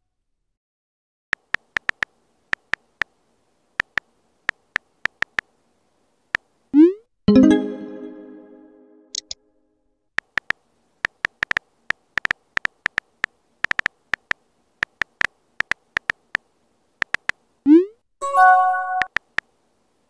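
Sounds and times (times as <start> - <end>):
phone keyboard tapping clicks: 1.4 - 3.1, 3.8 - 5.5, 10.2 - 16.4, 17.0 - 17.4.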